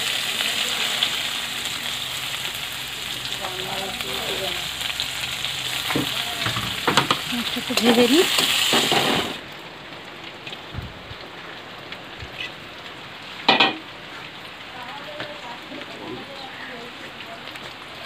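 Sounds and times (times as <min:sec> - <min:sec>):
onions sizzling in oil: 0:00.0 - 0:09.5.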